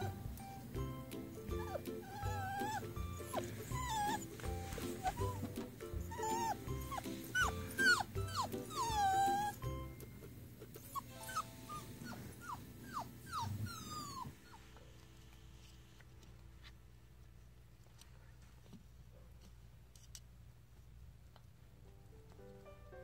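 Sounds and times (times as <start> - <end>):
puppy whining: 0.0 - 14.9
light background music: 0.0 - 16.7, 21.8 - 23.0.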